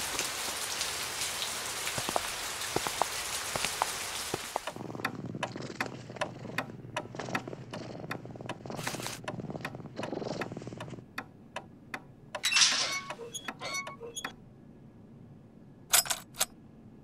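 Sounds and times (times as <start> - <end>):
pendulum clock ticking: 5.0 - 8.6.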